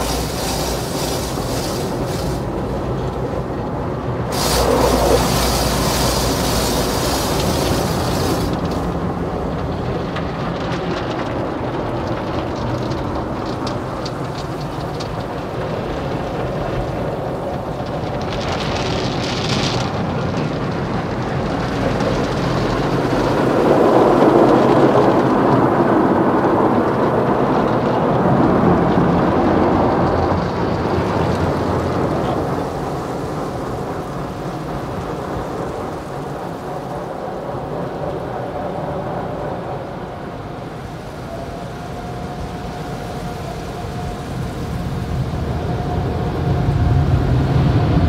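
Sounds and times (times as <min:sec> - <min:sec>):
cloth brushes scrubbing: 0:00.0 - 0:02.7, 0:04.3 - 0:08.9
machinery rumble: 0:00.0 - 0:48.0
water spraying onto car: 0:00.0 - 0:48.0.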